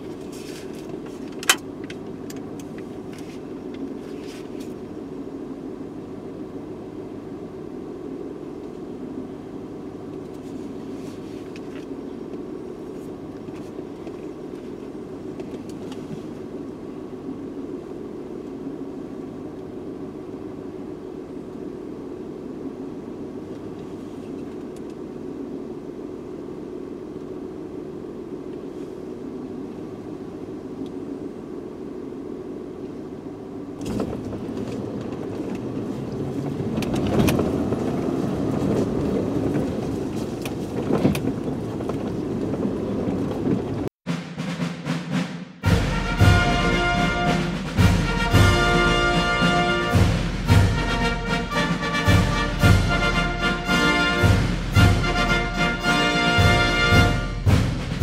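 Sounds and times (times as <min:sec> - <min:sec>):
car engine idling: 0:00.0 - 0:43.9
car pulling away on dirt road: 0:33.4 - 0:43.9.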